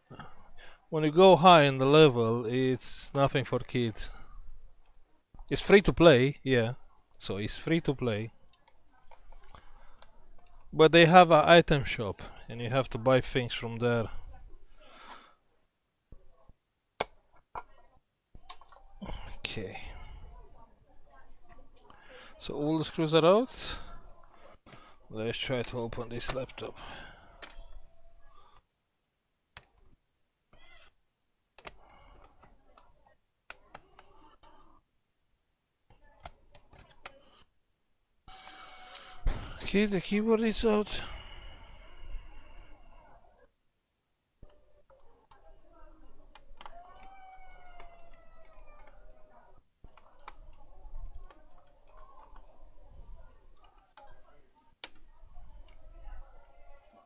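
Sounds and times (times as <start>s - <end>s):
sharp plastic clicks: 31.6s - 32.9s, 46.3s - 47.2s.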